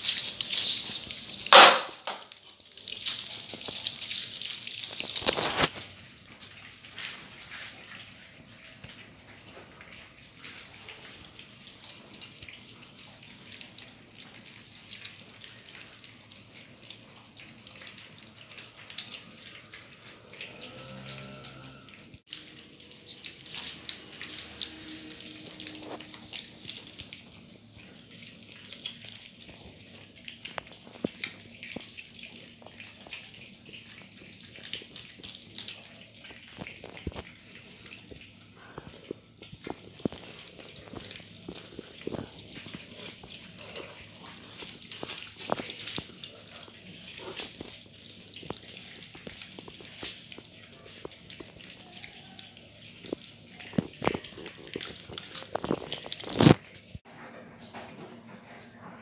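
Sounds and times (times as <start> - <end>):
cats chewing and licking: 0.0 - 59.0.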